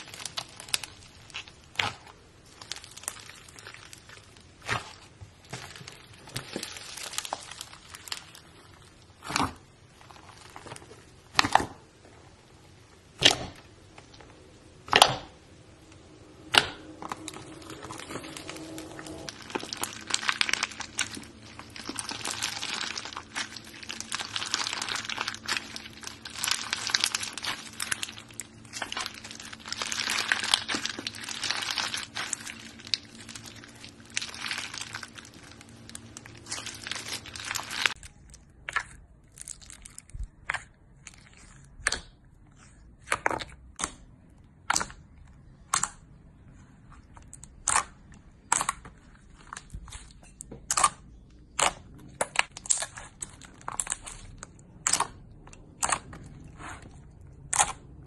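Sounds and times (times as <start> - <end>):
foamy slime popping: 0.0 - 11.8, 16.4 - 41.2
slime crackling with beads: 0.0 - 11.8, 16.1 - 43.8, 47.0 - 58.0.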